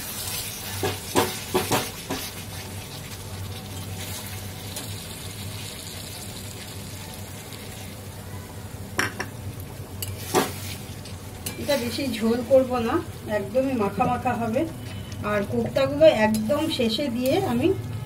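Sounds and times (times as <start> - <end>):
gravy sizzling in a pan: 0.0 - 17.8
metal spatula stirring: 14.8 - 17.5.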